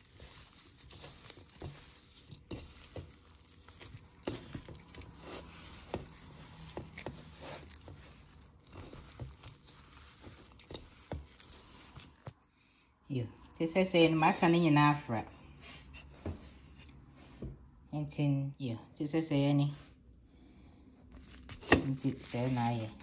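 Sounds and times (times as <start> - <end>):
crumbly mixture rustling in a bowl: 0.0 - 12.4, 21.0 - 23.0
plastic glove crinkling: 0.0 - 12.4, 21.0 - 23.0.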